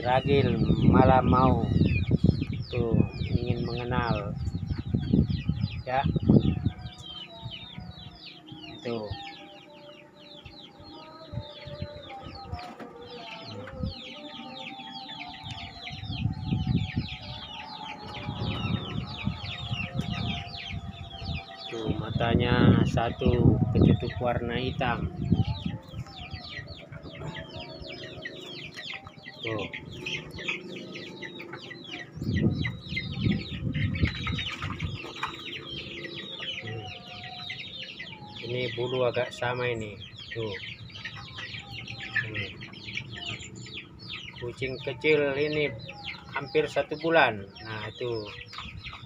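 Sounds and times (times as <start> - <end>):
low rumbling thumps: 0.0 - 7.0, 15.9 - 28.2, 29.3 - 36.9
birds chirping: 0.0 - 49.0
chicks peeping: 0.0 - 49.0.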